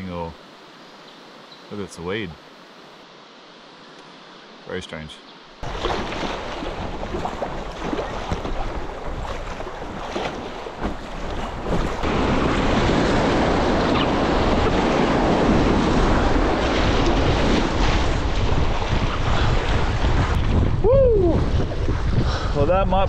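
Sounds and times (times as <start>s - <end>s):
paddles slapping water: 5.6s - 20.8s.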